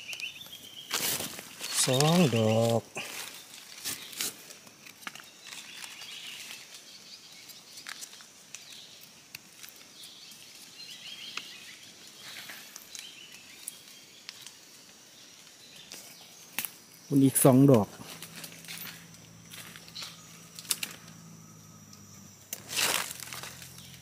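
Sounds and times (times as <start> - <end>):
faint bird chirps: 0.0 - 4.3, 5.2 - 9.1, 9.9 - 24.0
leaf litter clicks and rustles: 0.0 - 24.0.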